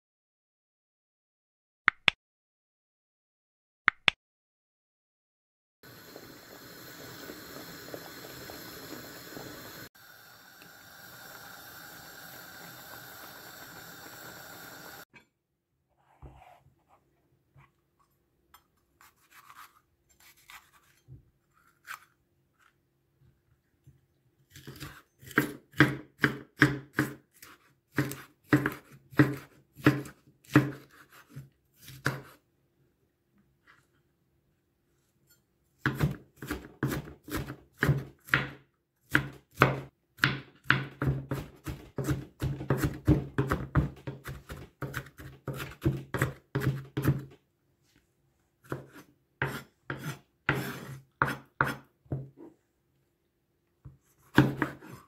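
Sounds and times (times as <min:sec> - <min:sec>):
knife chopping on wooden board: 0:24.6 - 0:32.4, 0:35.8 - 0:47.3, 0:48.6 - 0:52.3, 0:54.2 - 0:55.0.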